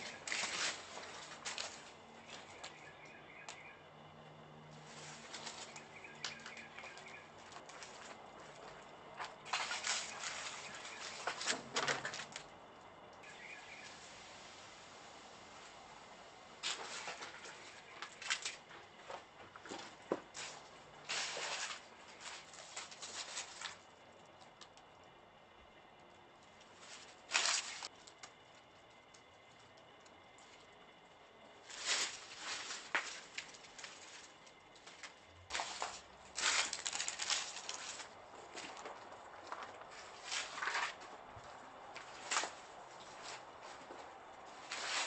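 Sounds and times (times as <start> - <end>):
footsteps crunching on debris: 0.0 - 2.8, 4.8 - 12.6, 16.6 - 23.9, 26.6 - 29.2, 31.6 - 45.0.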